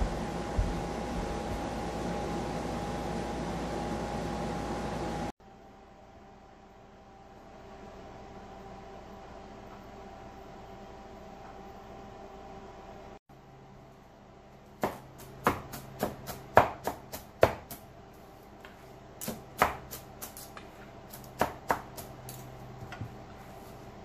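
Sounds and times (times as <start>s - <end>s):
knife chopping on wooden board: 14.8s - 17.8s, 19.2s - 22.2s.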